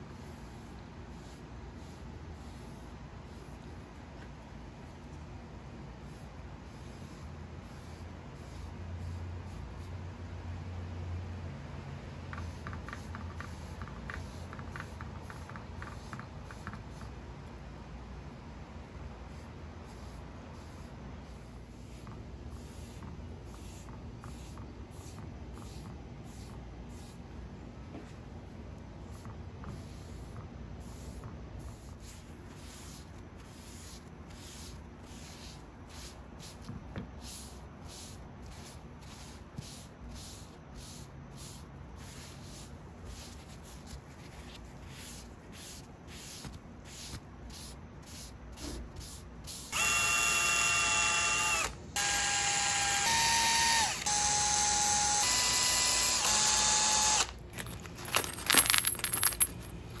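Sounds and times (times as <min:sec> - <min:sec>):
electric drill whining: 0:49.8 - 0:57.4
rustling: 0:57.5 - 1:00.0.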